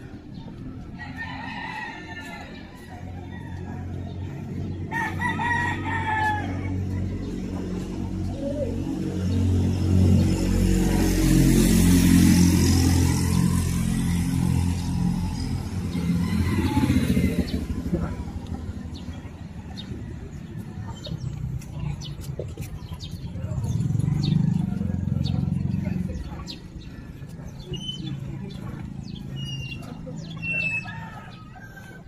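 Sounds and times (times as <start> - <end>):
vehicle engine: 0.0 - 32.0
rooster crowing: 1.0 - 6.8, 15.9 - 17.6, 30.4 - 32.0.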